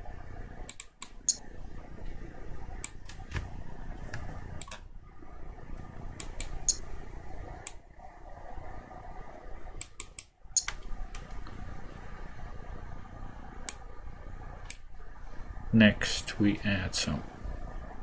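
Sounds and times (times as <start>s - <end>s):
low room hum: 0.0s - 18.0s
computer mouse clicking: 0.6s - 1.4s, 2.8s - 4.8s, 5.8s - 6.8s, 7.6s - 7.8s, 9.8s - 11.6s, 13.6s - 13.8s.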